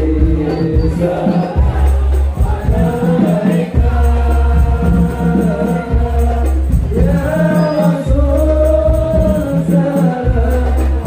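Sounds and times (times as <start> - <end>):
deep bass notes: 0.0 - 11.0
singing: 0.0 - 11.0.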